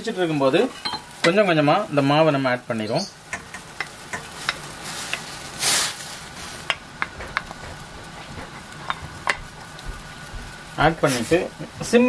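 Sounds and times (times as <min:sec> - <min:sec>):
water boiling in a pan: 0:00.0 - 0:12.0
flour sliding into water hiss: 0:04.6 - 0:06.7, 0:10.1 - 0:11.6.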